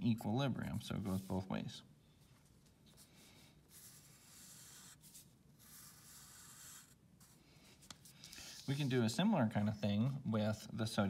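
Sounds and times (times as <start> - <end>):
pencil scratching on paper: 3.7 - 9.0.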